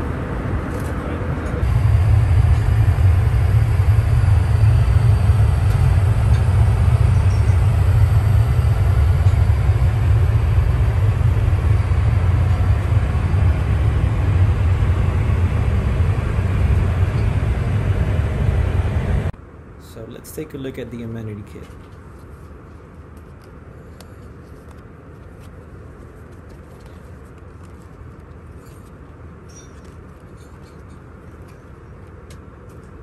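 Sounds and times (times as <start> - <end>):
airliner cabin engine rumble: 0.0 - 20.0.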